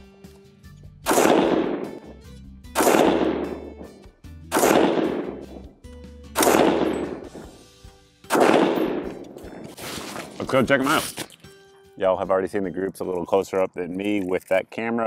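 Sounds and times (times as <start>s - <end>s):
rifle gunshots: 1.0s - 2.1s, 2.7s - 3.9s, 4.5s - 5.7s, 6.4s - 7.6s, 8.3s - 9.3s.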